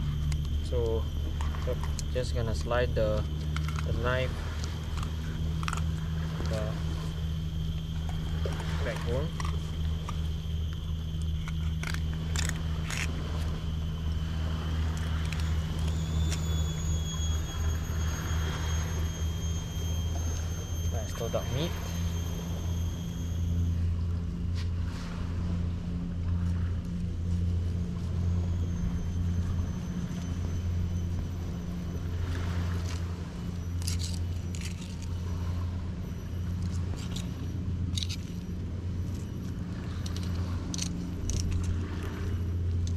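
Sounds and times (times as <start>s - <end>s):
deep hum: 0.0s - 42.9s
low engine rumble: 0.0s - 42.9s.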